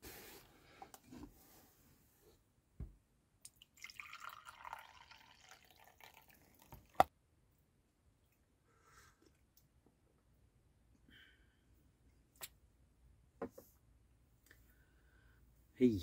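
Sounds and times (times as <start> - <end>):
coffee pouring into mug: 3.6 - 7.1.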